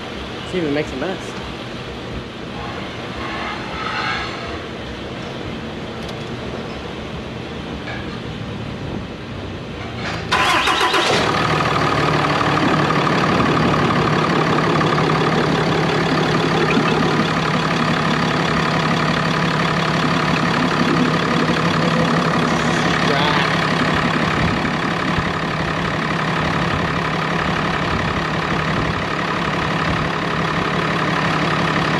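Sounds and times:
constant whine: 0.0 - 31.9
diesel engine cranking and idling: 8.3 - 31.9.

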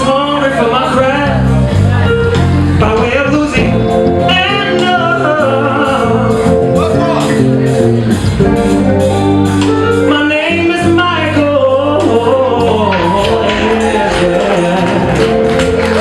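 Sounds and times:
man singing into a microphone: 0.0 - 1.7, 2.8 - 7.0, 10.0 - 15.8
live band playing: 0.0 - 16.0.

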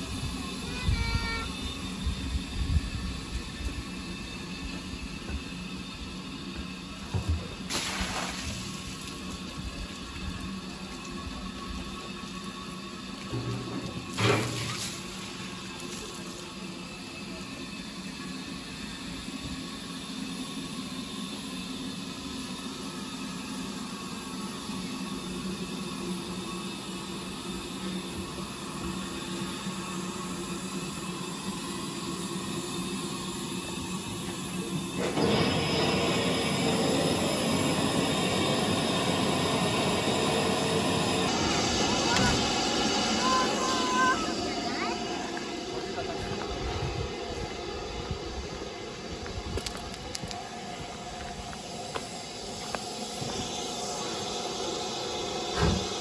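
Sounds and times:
steam locomotive hissing: 0.0 - 56.0
rush of water: 7.7 - 9.3
low hum: 28.4 - 56.0.

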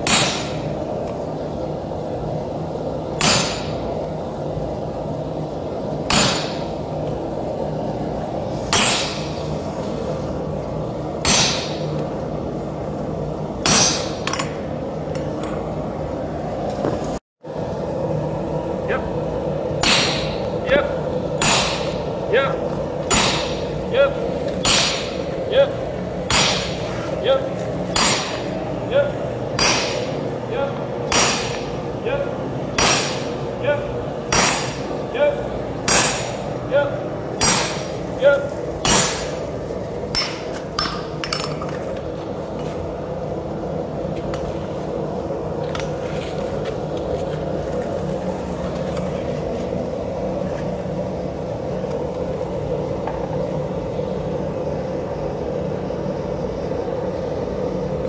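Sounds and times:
sledgehammer ringing on anvil: 0.0 - 0.7, 3.2 - 3.9, 6.1 - 6.7, 8.7 - 9.4, 11.2 - 11.9, 13.6 - 14.6, 19.8 - 20.5, 21.4 - 22.0, 23.1 - 23.7, 24.6 - 25.2, 26.3 - 26.8, 27.9 - 28.5, 29.6 - 30.2, 31.1 - 31.7, 32.8 - 33.4, 34.3 - 34.9, 35.9 - 36.5, 37.4 - 38.0, 38.8 - 39.4
steady background hum: 0.0 - 58.0.

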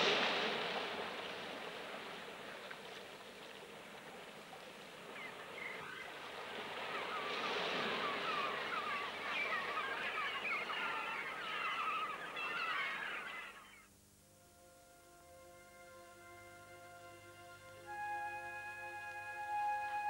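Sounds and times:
flock of birds chirping: 2.5 - 13.9.

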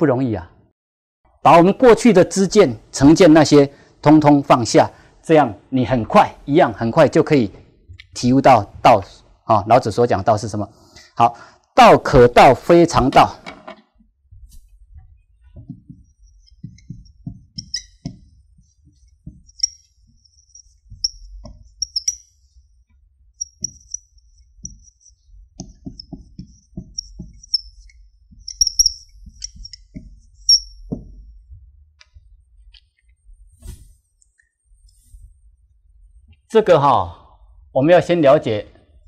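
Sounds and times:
marker writing on whiteboard: 14.5 - 33.9.

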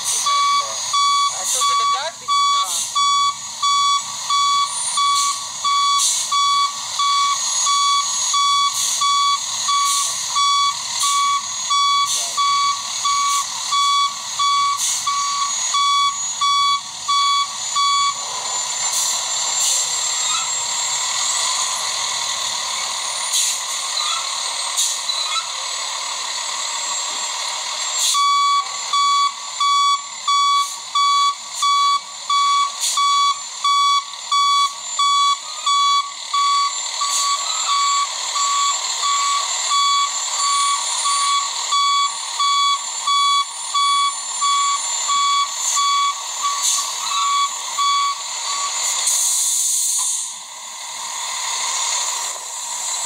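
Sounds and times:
truck reversing alarm beeping: 0.0 - 53.0
steady hiss with high whistle: 43.5 - 50.4.

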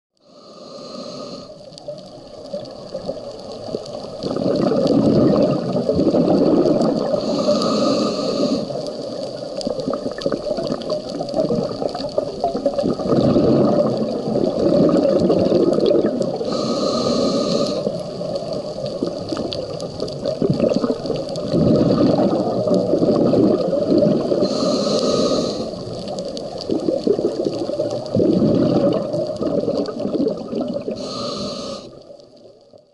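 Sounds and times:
hissing regulator inhalation: 0.2 - 1.6, 6.9 - 9.0, 15.8 - 18.2, 23.9 - 26.2, 30.8 - 32.0
bubbling exhaled air: 0.2 - 32.2.

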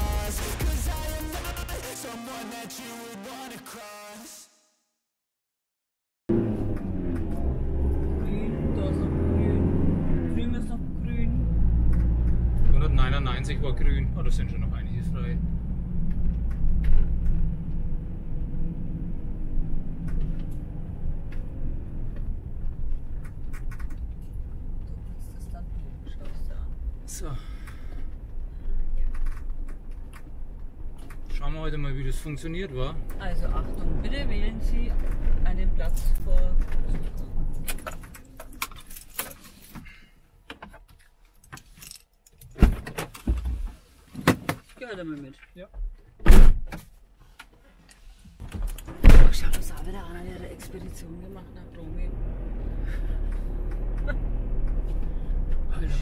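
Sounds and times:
van engine low rumble: 6.3 - 40.4, 48.6 - 56.0
loud thump: 46.2 - 46.8, 48.9 - 49.5.

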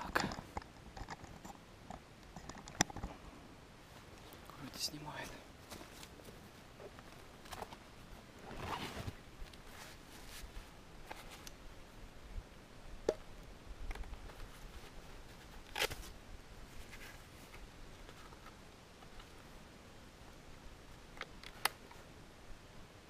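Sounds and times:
faint rustling: 0.0 - 11.5.

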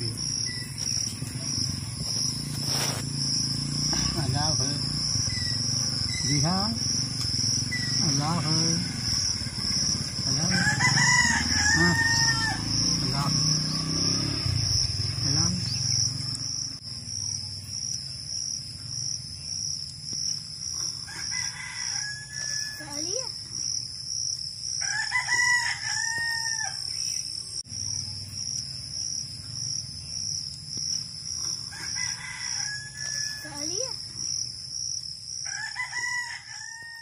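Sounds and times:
insects chirping: 0.0 - 37.0
roosters crowing: 0.3 - 16.6, 20.8 - 23.2, 24.7 - 27.1, 31.4 - 33.9, 35.4 - 37.0.

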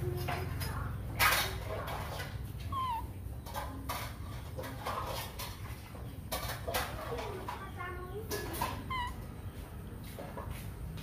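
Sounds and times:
baby monkey squeaky chirp: 2.6 - 3.3, 8.7 - 9.3.

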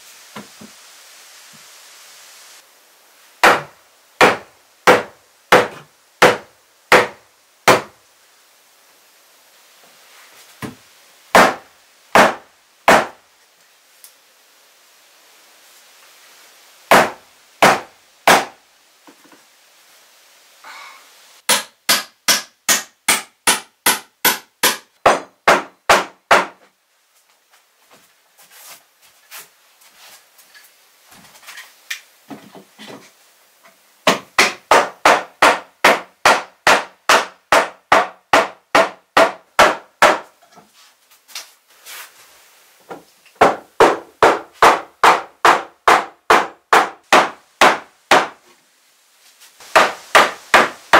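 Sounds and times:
hammer driving nails into wood: 3.4 - 7.9, 11.4 - 13.2, 16.9 - 18.6, 21.5 - 26.6, 34.0 - 40.3, 43.4 - 48.4, 49.7 - 50.8.

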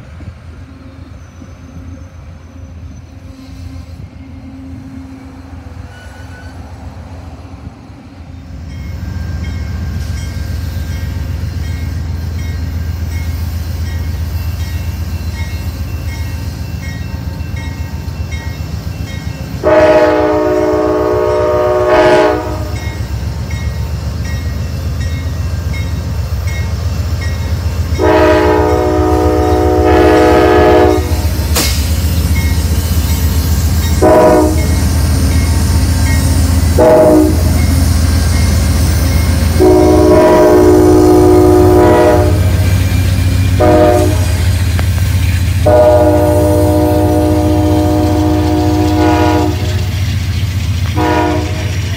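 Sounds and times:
locomotive horn blasts: 19.6 - 23.0, 28.0 - 31.4, 34.0 - 34.8, 36.7 - 37.6, 39.4 - 42.7, 43.6 - 44.5, 45.6 - 49.9, 51.0 - 51.9.

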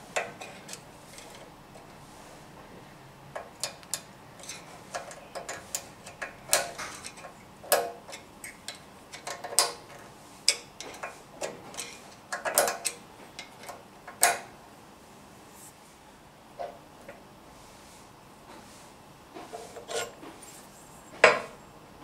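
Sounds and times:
screwdriver clicking on metal: 3.4 - 14.4.

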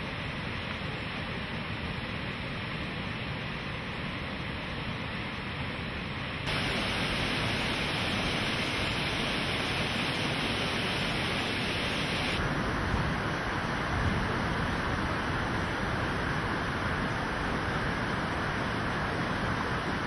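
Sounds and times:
water rushing over rocks: 6.5 - 20.0.

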